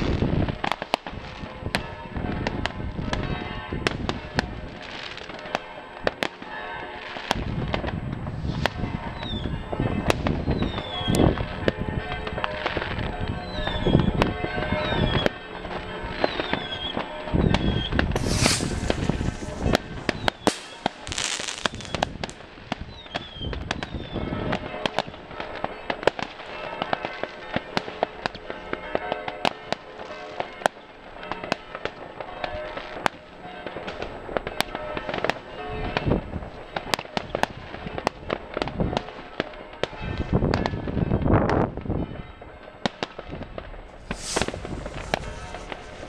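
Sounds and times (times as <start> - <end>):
fireworks bangs and crackling: 0.0 - 46.0
short hiss: 18.2 - 19.6, 44.1 - 46.0.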